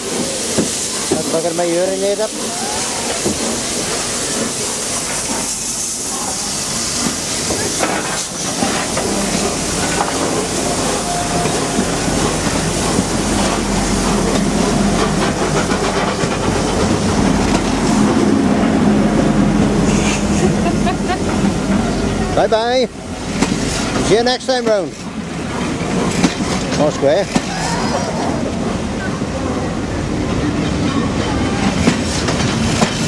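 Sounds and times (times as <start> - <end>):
steam hissing: 0.0 - 33.0
steam locomotive pulling away: 0.0 - 33.0
wheels clattering over rail joints: 7.0 - 18.3, 21.1 - 28.1.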